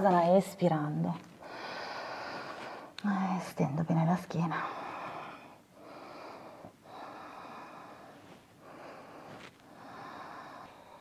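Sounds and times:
woman breathing slowly: 0:01.4 - 0:03.0, 0:04.6 - 0:11.0.

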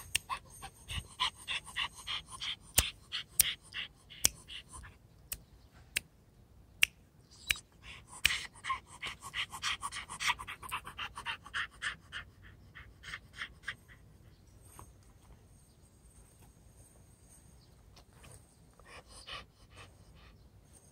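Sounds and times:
puppy panting: 0:00.0 - 0:05.0, 0:07.8 - 0:14.5, 0:18.8 - 0:20.4.

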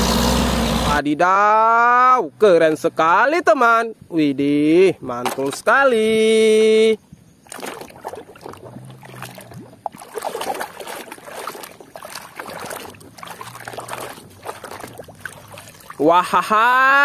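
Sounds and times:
water splashing: 0:05.2 - 0:05.8, 0:07.4 - 0:17.0
hand scrubbing toy in water: 0:07.4 - 0:16.8.

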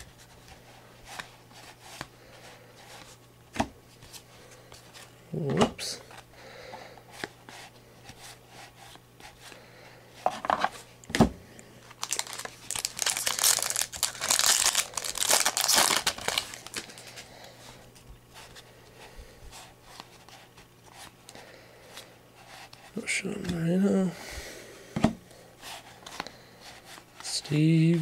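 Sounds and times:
foil wrapper crinkling and tearing: 0:11.9 - 0:17.2.

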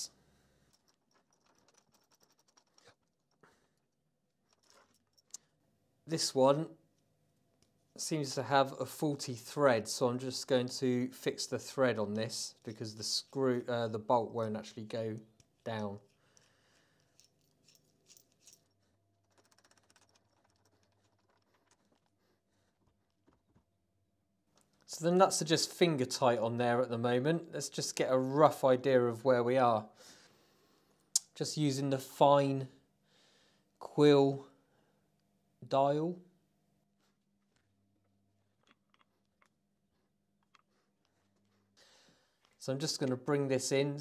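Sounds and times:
nuts threaded onto metal bolts: 0:00.7 - 0:05.4, 0:15.1 - 0:22.2, 0:38.6 - 0:39.6.

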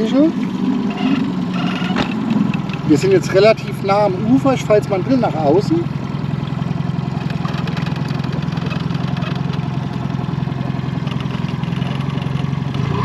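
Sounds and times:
outboard engine running: 0:00.0 - 0:13.0.

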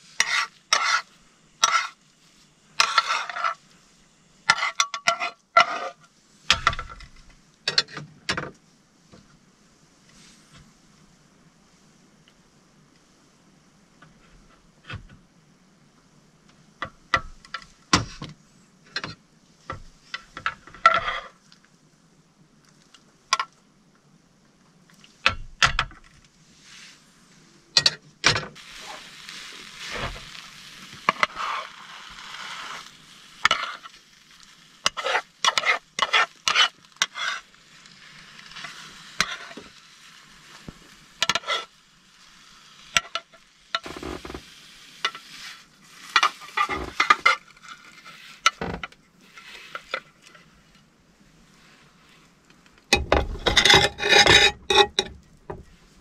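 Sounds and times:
utensil tapping and scraping pan: 0:00.2 - 0:02.0, 0:02.8 - 0:03.6, 0:04.5 - 0:06.9, 0:33.5 - 0:33.9, 0:34.8 - 0:37.4, 0:38.6 - 0:39.7, 0:41.2 - 0:41.7, 0:52.9 - 0:55.8
egg sizzling in pan: 0:28.6 - 0:47.4.

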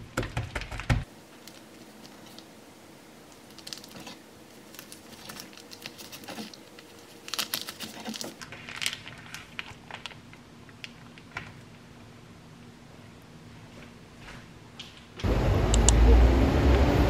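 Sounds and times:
plastic bag crinkling: 0:01.4 - 0:02.5, 0:03.3 - 0:11.8.

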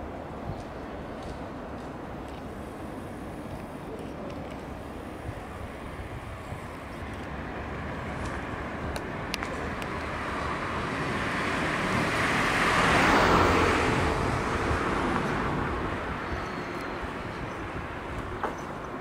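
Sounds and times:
background traffic: 0:00.0 - 0:19.0
car passing by: 0:07.2 - 0:17.3.

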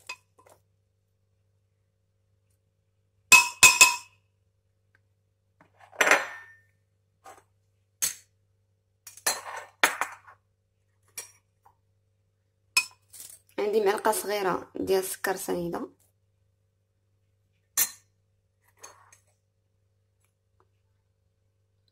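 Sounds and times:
spoon scraping jug: 0:18.7 - 0:19.3.

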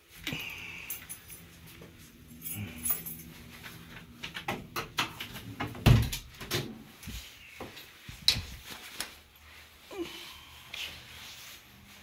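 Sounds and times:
low steady hum: 0:00.0 - 0:12.0
keys and door hardware rattling: 0:00.4 - 0:03.6.

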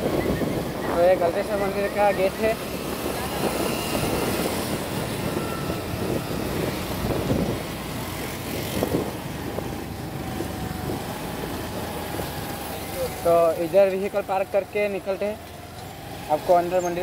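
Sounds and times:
wind on microphone: 0:00.0 - 0:12.6
road noise: 0:00.0 - 0:17.0
small scooter engine: 0:00.0 - 0:17.0.

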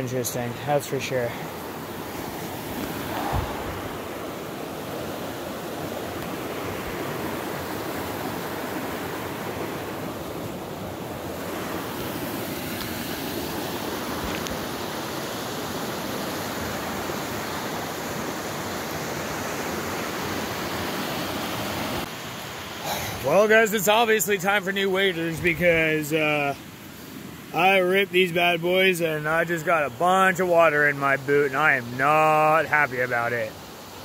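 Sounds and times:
creek rushing over rocks: 0:00.0 - 0:33.8.

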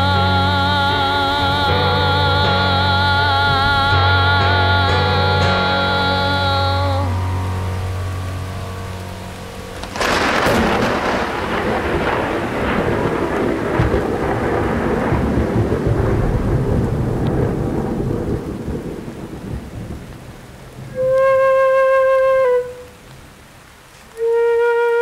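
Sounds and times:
thunder rumble: 0:00.0 - 0:23.6
steady rain: 0:00.0 - 0:25.0
thunderclap: 0:09.6 - 0:21.3.

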